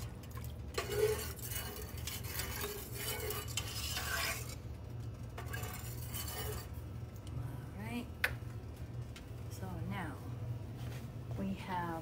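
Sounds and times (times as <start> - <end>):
utensil scraping metal pot: 0.0 - 7.0.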